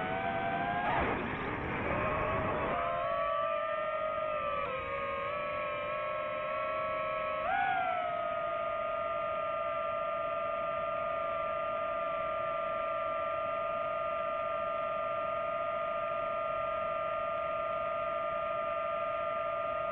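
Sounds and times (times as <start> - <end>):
drone propellers whining: 0.0 - 15.2.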